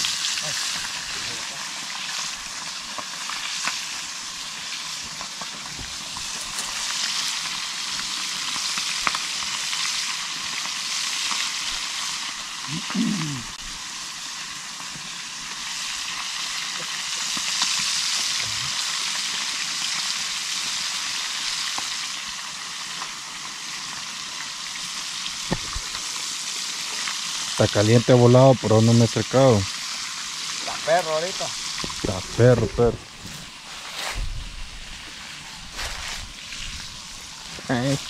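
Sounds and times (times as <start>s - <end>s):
fish frying in hot oil: 0.0s - 38.0s
oil popping: 25.2s - 27.3s, 29.7s - 38.0s.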